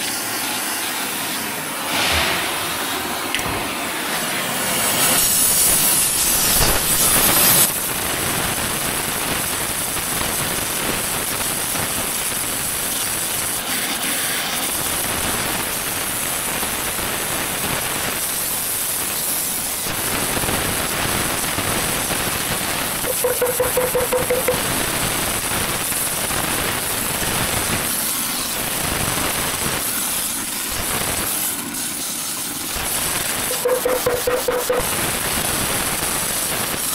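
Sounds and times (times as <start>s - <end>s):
heating torch hissing rush: 0.0s - 23.1s, 24.6s - 33.5s, 34.9s - 36.9s.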